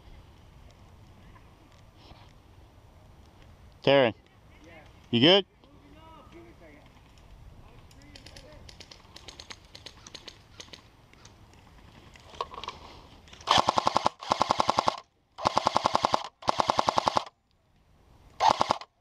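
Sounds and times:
airsoft gun firing bursts: 13.5 - 17.3, 18.4 - 19.0.

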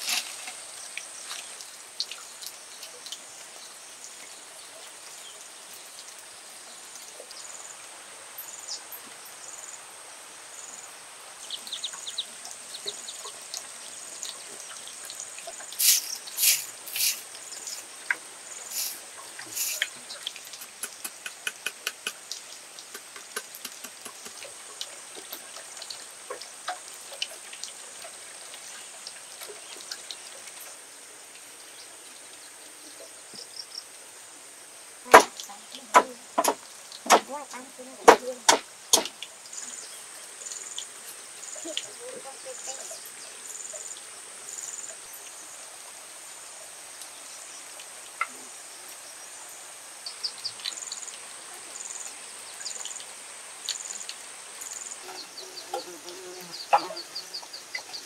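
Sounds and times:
high insect drone: 48.5 - 58.0.

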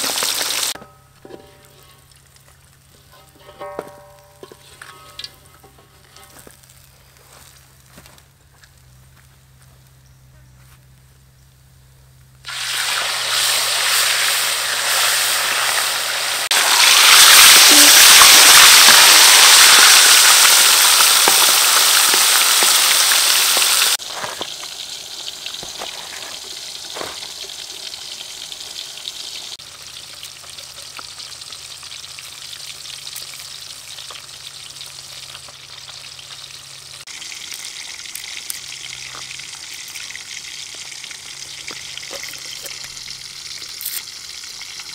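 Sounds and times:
fish sizzling in hot oil: 0.0 - 0.8, 1.6 - 3.2, 12.4 - 44.9.

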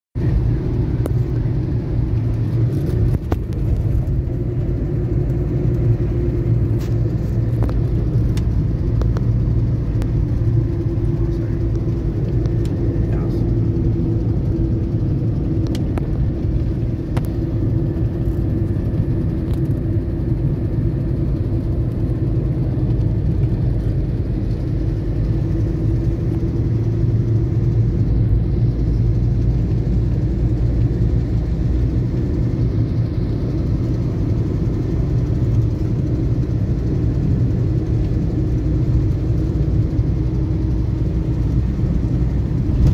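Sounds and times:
vehicle engine rumble: 0.2 - 42.9.

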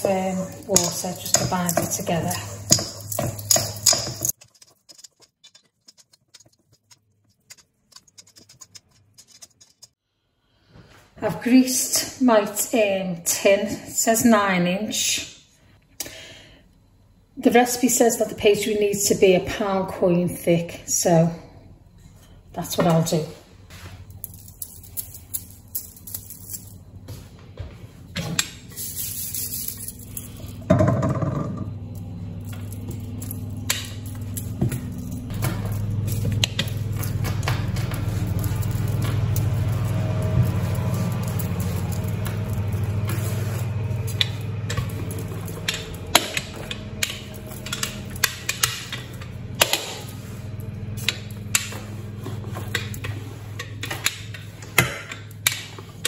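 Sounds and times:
rolling pin rolling dough: 0.0 - 10.0, 27.1 - 56.0
crumbly pastry crackling: 35.2 - 46.1.

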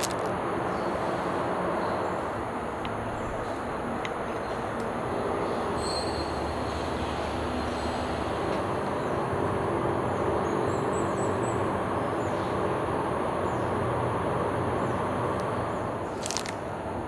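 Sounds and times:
passing train rumble: 0.0 - 17.0.

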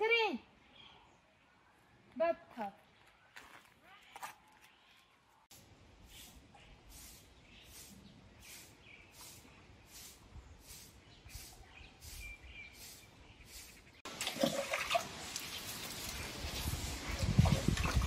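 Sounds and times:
bird chirping: 6.0 - 14.1.

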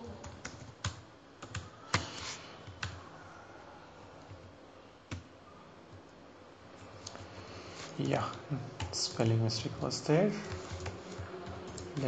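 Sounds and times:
computer keyboard typing: 0.2 - 3.1, 5.1 - 5.3, 6.8 - 12.0.

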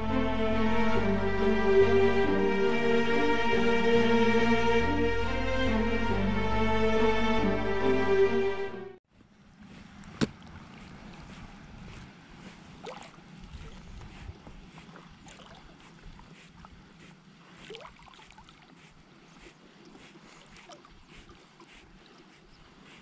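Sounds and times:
small waves lapping: 9.1 - 23.0.

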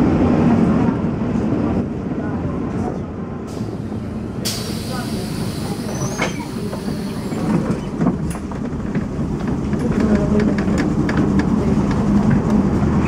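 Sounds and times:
tram running rumble: 0.0 - 13.0
wheels clicking on rails: 4.5 - 13.0.

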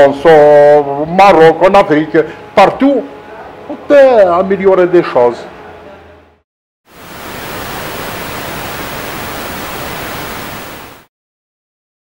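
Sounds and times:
loud static hiss: 6.9 - 11.1.

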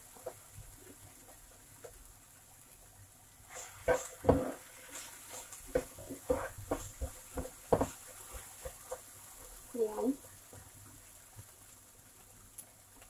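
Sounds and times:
spatula scraping frying pan: 3.5 - 9.7.

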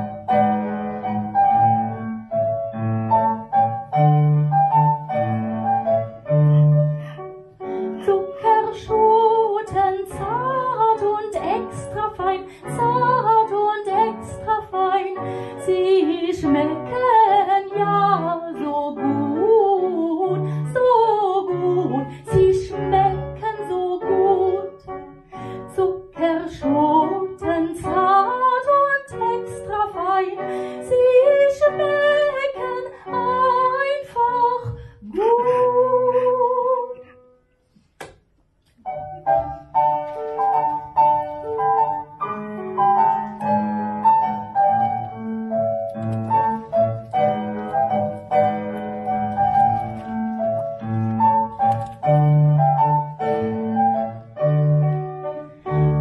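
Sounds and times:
woman singing: 8.0 - 24.8, 25.7 - 37.1.

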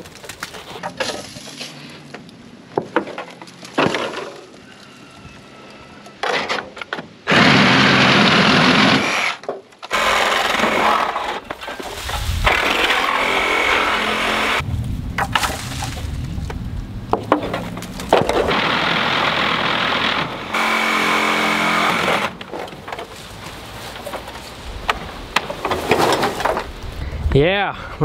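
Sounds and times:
handling knocks and clatter: 15.2 - 18.5, 22.3 - 26.7.

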